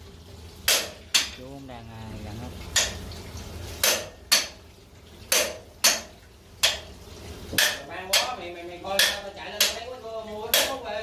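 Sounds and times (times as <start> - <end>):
hammer striking metal: 5.3 - 6.8, 7.6 - 8.4, 9.0 - 9.8.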